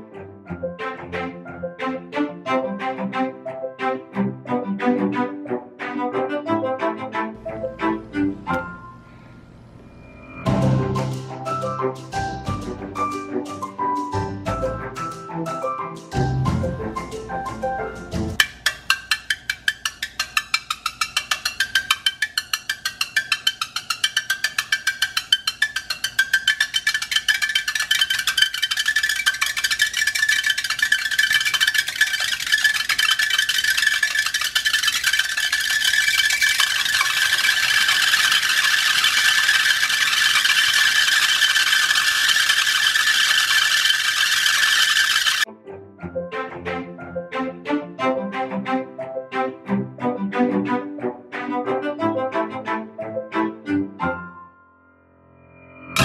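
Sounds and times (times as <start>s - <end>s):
beads rattling on hot pan: 18.4s - 45.5s.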